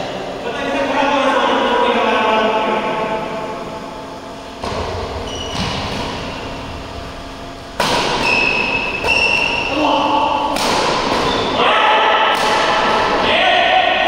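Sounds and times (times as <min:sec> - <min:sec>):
steady low hum: 0:00.0 - 0:14.0
short high squeaks: 0:05.2 - 0:05.7, 0:08.2 - 0:09.8.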